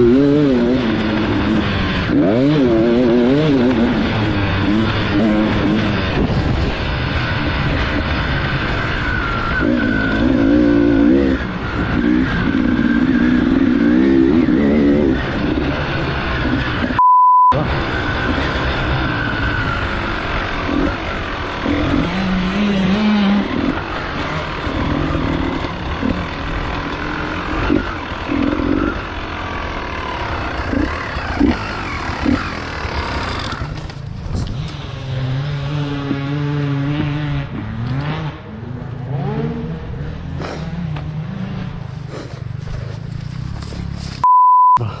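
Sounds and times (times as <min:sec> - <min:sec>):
motorcycle engine revving: 0:00.0 - 0:17.0, 0:17.6 - 0:44.2
loud steady beep tone: 0:17.0 - 0:17.6, 0:44.2 - 0:45.0.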